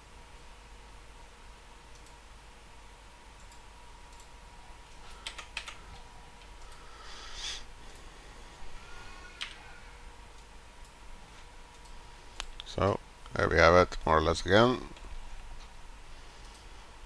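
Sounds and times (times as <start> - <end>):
mouse and keyboard clicks: 5.1 - 5.8.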